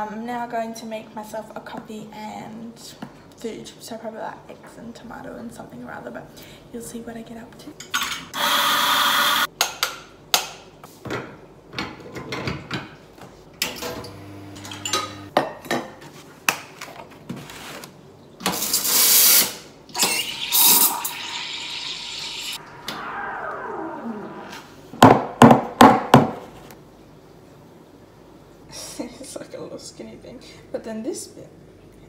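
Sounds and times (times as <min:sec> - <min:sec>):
water running into a container: 0:20.0 - 0:22.6.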